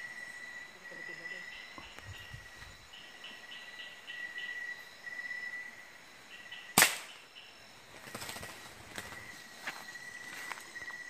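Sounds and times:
insect chirring: 0.0 - 11.0
sharp gunshot: 6.8 - 7.2.

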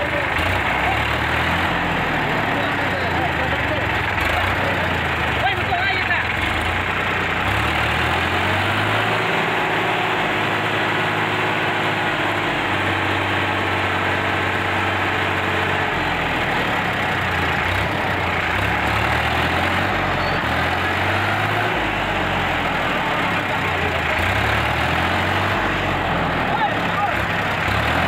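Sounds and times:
tractor diesel engine running: 0.0 - 28.0.

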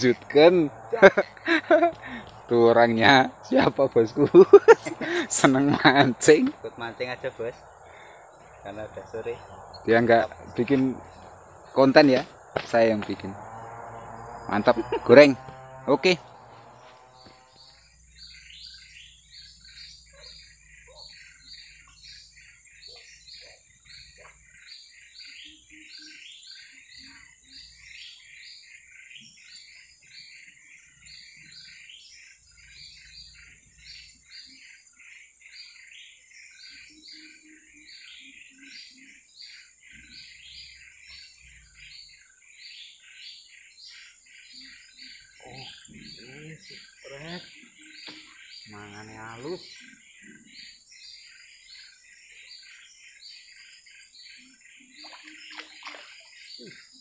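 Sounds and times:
birds chirping: 0.0 - 57.0
high insect drone: 0.0 - 57.0
loud high-pitched chirp: 16.2 - 24.3.

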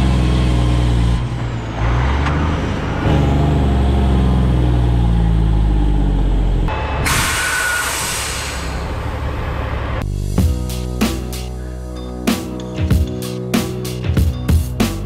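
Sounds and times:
truck diesel engine: 0.0 - 15.0
air hiss: 7.1 - 9.0.

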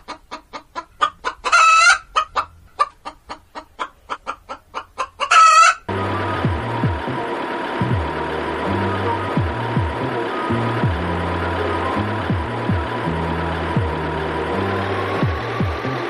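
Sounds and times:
chicken clucking: 0.0 - 5.9
chicken squawk: 0.0 - 5.9
music: 5.9 - 16.0.

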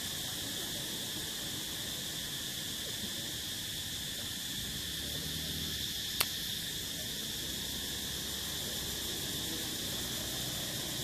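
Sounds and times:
insects calling: 0.0 - 11.0
sharp click: 6.2 - 6.4.

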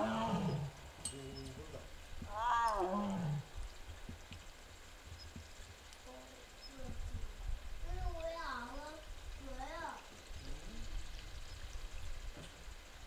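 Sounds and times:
tiger calling: 0.0 - 3.6.

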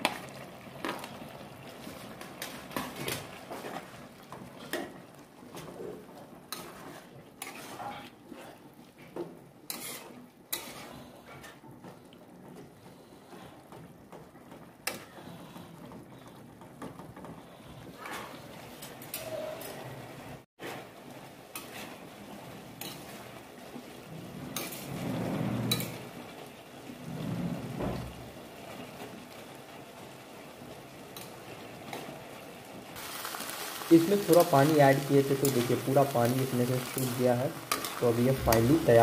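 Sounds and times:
metal utensils scraping and clinking: 1.9 - 4.0, 6.5 - 8.6, 9.7 - 11.6, 17.7 - 20.0, 22.7 - 23.3, 24.5 - 26.2, 33.2 - 39.0.

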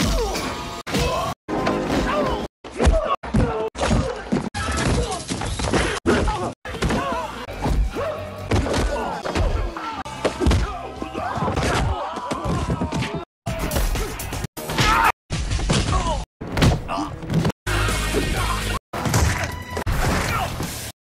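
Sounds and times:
background music: 6.7 - 11.8, 16.6 - 20.9
punches and kicks thudding: 14.9 - 17.5.

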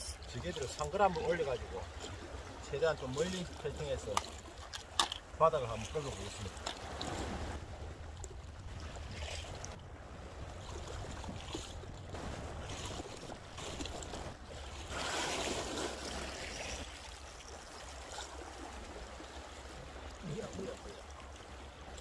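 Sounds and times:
sea water washing against rocks: 0.0 - 22.0
wind rumble on microphone: 6.7 - 17.0.

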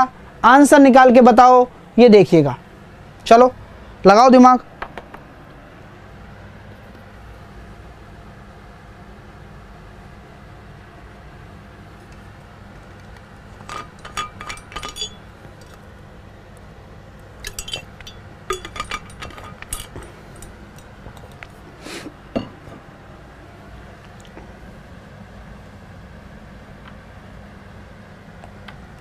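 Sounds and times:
steady low hum: 0.0 - 29.0
hard objects clinking: 13.0 - 15.8, 17.4 - 21.6.

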